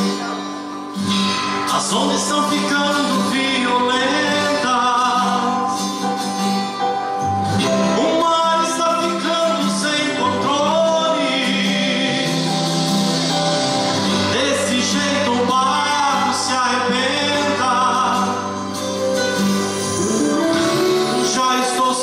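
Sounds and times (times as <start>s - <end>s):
sustained instrumental accompaniment: 0.0s - 22.0s
man singing a hymn: 1.6s - 6.1s, 7.6s - 13.3s, 14.1s - 18.7s, 19.8s - 22.0s.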